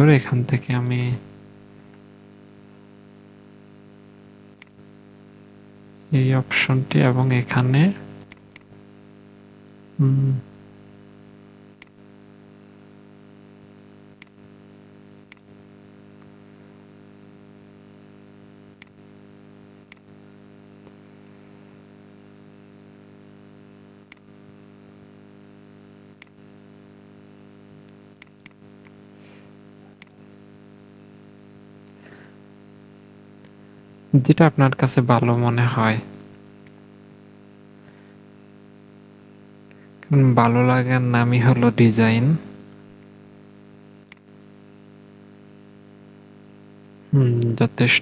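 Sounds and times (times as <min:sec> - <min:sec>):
steady electrical hum: 0:00.0 - 0:48.0
computer mouse clicks: 0:08.2 - 0:08.7, 0:14.2 - 0:14.4, 0:15.3 - 0:15.5, 0:19.9 - 0:20.1, 0:24.1 - 0:24.3, 0:26.2 - 0:26.4, 0:27.8 - 0:29.0, 0:29.9 - 0:30.2, 0:44.0 - 0:44.3
short vocal sound: 0:10.0 - 0:10.5, 0:47.1 - 0:47.8.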